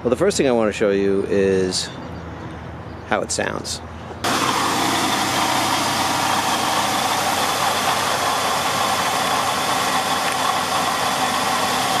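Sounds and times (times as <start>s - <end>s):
car engine running: 4.2s - 12.0s.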